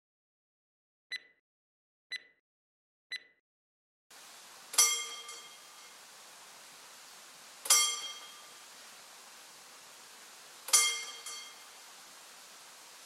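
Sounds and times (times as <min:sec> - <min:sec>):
mechanical warning bell strike: 0:04.7 - 0:05.9, 0:07.6 - 0:08.5, 0:10.7 - 0:11.8.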